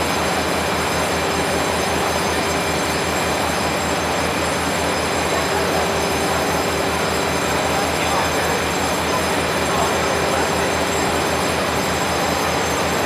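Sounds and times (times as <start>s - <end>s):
locomotive engine throbbing: 0.0s - 13.0s.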